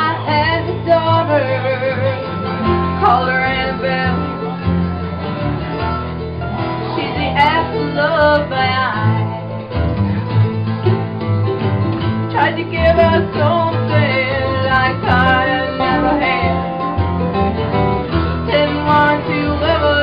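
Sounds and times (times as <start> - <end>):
strummed acoustic guitars: 0.0 - 20.0
people singing: 12.4 - 16.9.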